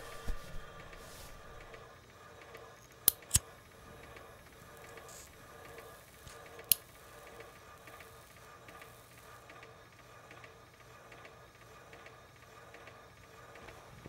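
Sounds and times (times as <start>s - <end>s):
faint steady hum: 0.0s - 14.0s
metal lighter clicking: 3.0s - 3.5s.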